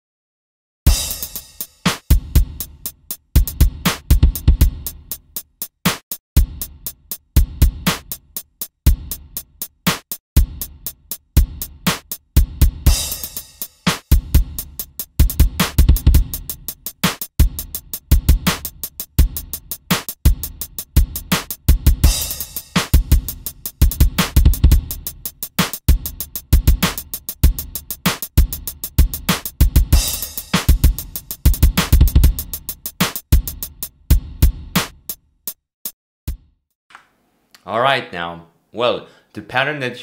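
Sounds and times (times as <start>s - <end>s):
kick drum thumps: 15.2s - 16.3s, 22.9s - 24.9s, 29.0s - 32.4s, 36.3s - 36.5s.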